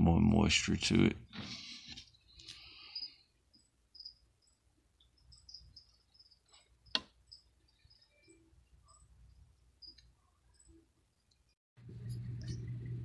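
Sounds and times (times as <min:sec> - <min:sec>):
high insect chirping: 0:02.1 - 0:10.9.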